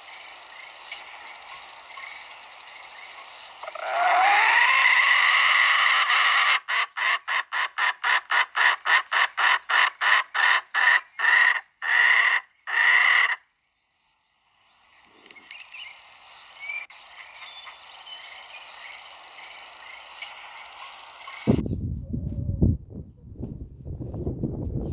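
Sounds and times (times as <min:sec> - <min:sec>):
chicken squawking: 0:03.6 - 0:13.4
small bird chirps: 0:13.7 - 0:22.0.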